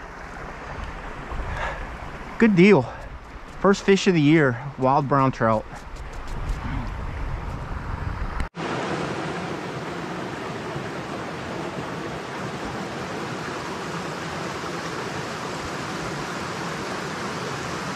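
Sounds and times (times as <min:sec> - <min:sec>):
stream rushing over rocks: 0:08.6 - 0:17.9.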